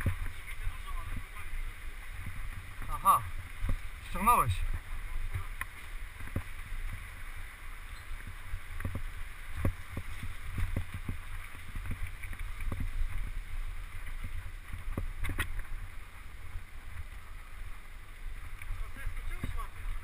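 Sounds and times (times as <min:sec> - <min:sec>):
bike knocks and rattles: 0:00.0 - 0:00.4
wind rumbling on microphone: 0:00.0 - 0:20.0.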